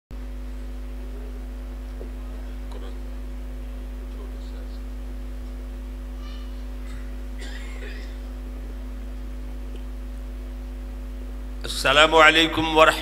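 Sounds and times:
electrical mains hum: 0:00.1 - 0:13.0.

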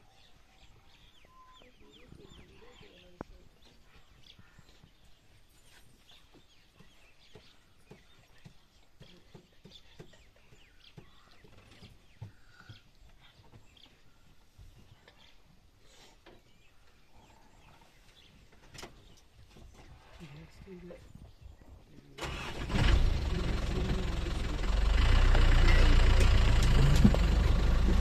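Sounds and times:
bird chirps: 0:00.0 - 0:14.2.

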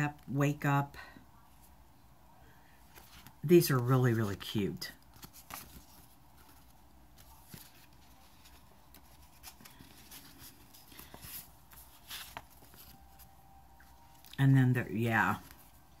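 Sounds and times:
sticker sheets rustling: 0:02.9 - 0:13.3.

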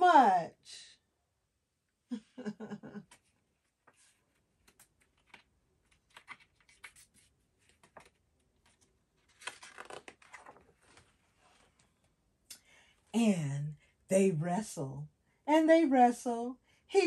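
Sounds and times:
book pages rustling: 0:03.1 - 0:12.1.

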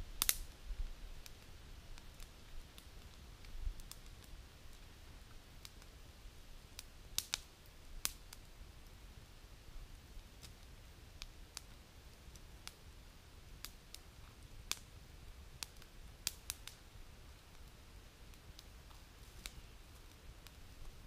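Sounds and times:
wood fire crackling: 0:00.0 - 0:21.0
sharp pops of fire: 0:00.2 - 0:00.6, 0:01.2 - 0:04.9, 0:05.6 - 0:05.9, 0:06.6 - 0:08.5, 0:10.2 - 0:12.9, 0:13.6 - 0:21.0.

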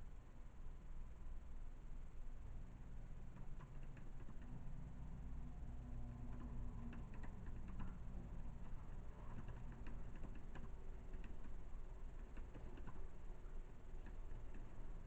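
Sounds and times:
low steady hum: 0:00.0 - 0:15.0
keyboard typing clicks: 0:06.2 - 0:13.2.

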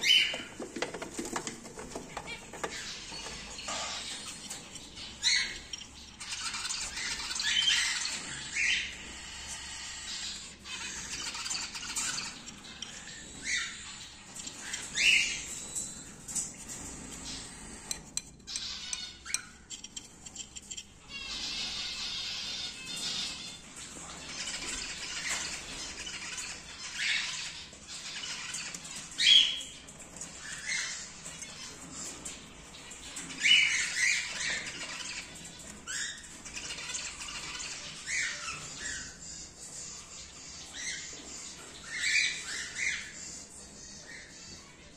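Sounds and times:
cockatiel chicks calling: 0:00.0 - 0:44.9
small clicks and taps: 0:17.8 - 0:20.9.

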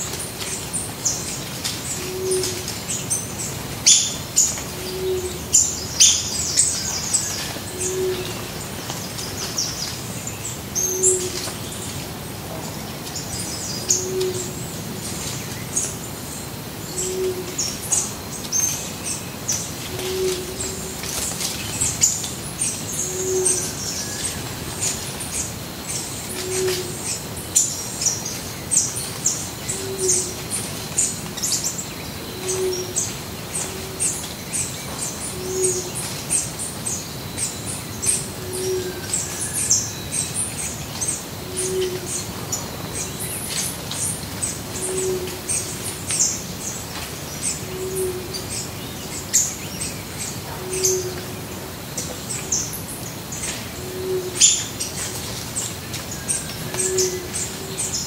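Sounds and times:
birds chirping and twittering: 0:00.0 - 0:58.0
low hoot: 0:04.8 - 0:05.7, 0:16.9 - 0:18.0, 0:19.9 - 0:21.0, 0:23.0 - 0:23.9, 0:32.3 - 0:33.0, 0:41.4 - 0:42.3, 0:44.8 - 0:45.6, 0:47.6 - 0:48.5, 0:50.4 - 0:51.4, 0:53.8 - 0:54.7, 0:56.7 - 0:57.9.

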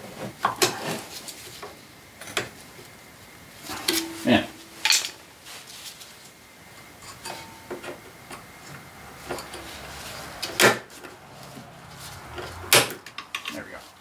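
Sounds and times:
sharp metal clank: 0:03.7 - 0:05.2
tools and metal parts clinking: 0:03.7 - 0:05.2, 0:13.1 - 0:13.7.

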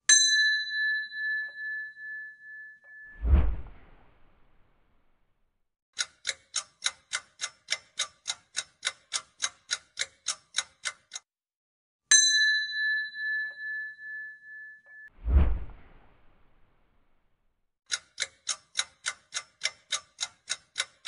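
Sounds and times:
bell ding: 0:00.1 - 0:03.2, 0:12.1 - 0:15.1
short whoosh: 0:03.2 - 0:04.6, 0:15.2 - 0:16.6
clock ticking: 0:06.0 - 0:11.3, 0:17.9 - 0:21.0.

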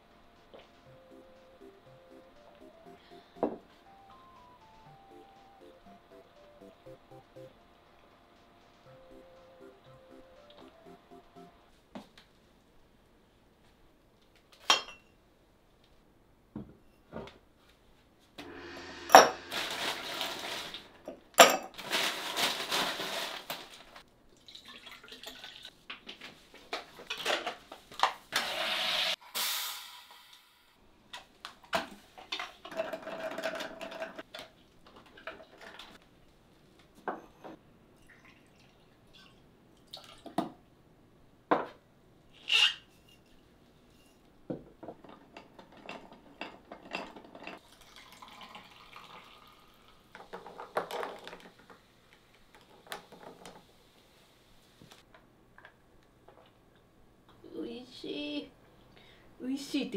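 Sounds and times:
liquid pouring: 0:24.4 - 0:25.7, 0:47.6 - 0:50.0.

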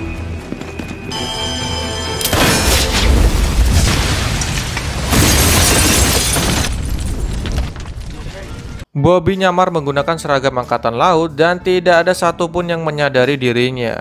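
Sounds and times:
debris shattering: 0:02.2 - 0:08.8.

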